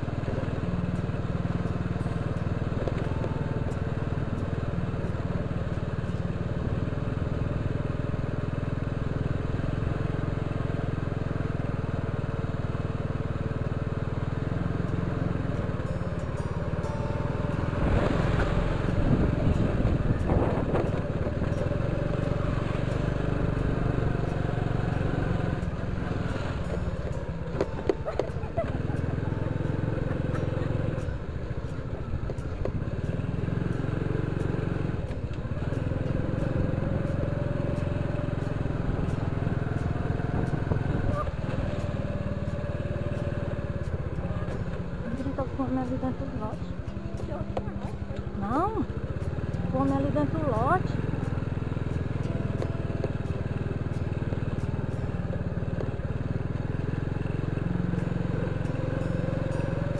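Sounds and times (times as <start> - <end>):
motorcycle engine running: 0.0 - 59.9
high steady tone: 14.8 - 59.9.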